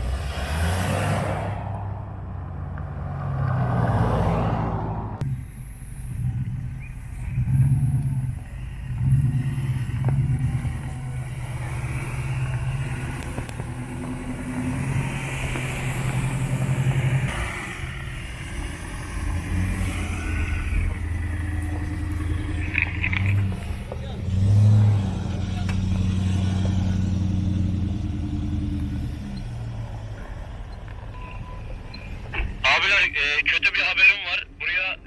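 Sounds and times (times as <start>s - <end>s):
car driving past: 0.0s - 5.2s
off-road engines revving: 0.0s - 35.0s.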